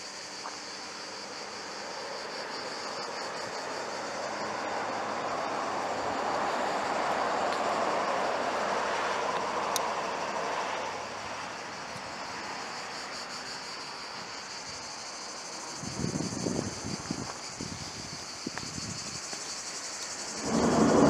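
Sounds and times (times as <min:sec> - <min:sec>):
insects chirring: 0:00.0 - 0:21.0
vehicle passing on road: 0:03.0 - 0:12.7, 0:19.0 - 0:21.0
wind buffeting microphone: 0:15.8 - 0:21.0.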